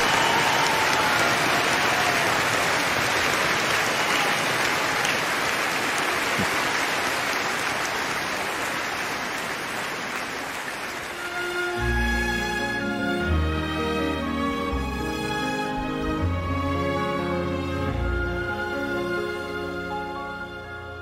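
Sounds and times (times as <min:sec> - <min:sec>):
audience applauding: 0:00.0 - 0:12.1.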